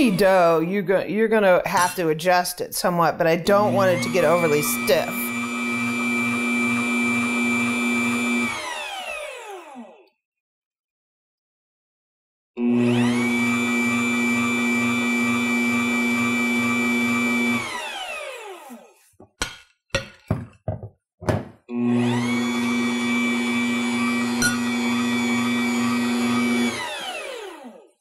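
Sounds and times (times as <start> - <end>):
dough maker motor whining: 3.5 - 10.2, 12.6 - 19.0, 21.7 - 28.0.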